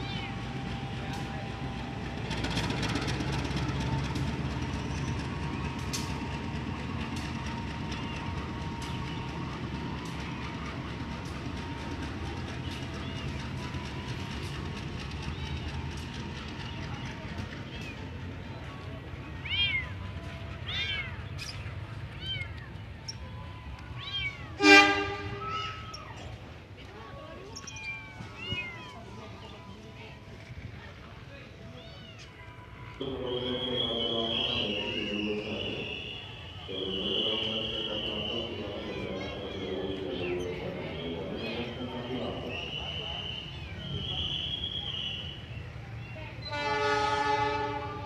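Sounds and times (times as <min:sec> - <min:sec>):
locomotive engine rumble: 0:00.0 - 0:48.0
wheels clacking over rail: 0:02.0 - 0:18.9.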